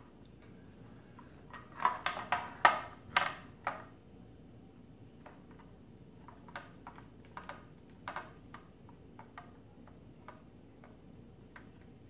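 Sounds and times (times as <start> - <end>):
steady low hum: 0.0 - 12.0
small plastic parts clicking: 5.2 - 12.0.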